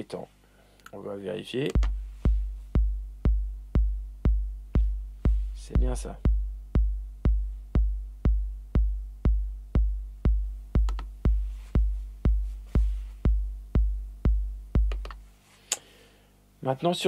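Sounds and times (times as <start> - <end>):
electronic kick drum: 1.7 - 15.3.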